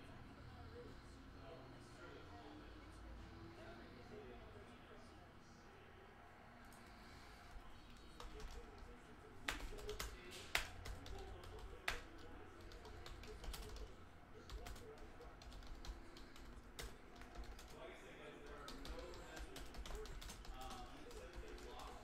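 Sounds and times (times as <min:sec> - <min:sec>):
typing on computer keyboard: 0:07.8 - 0:17.8, 0:18.4 - 0:22.0.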